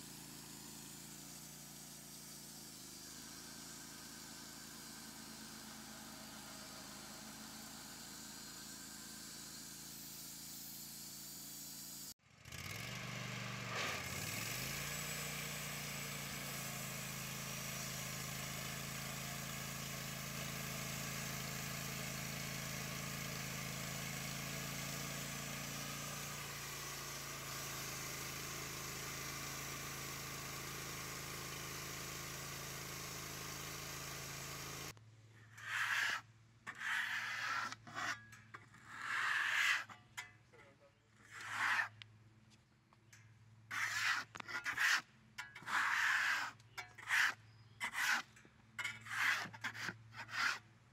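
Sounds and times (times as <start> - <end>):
gas engine running: 12.4 - 35.0
band saw blade cutting log: 13.4 - 34.9, 35.5 - 40.4, 41.2 - 42.0, 43.7 - 50.7.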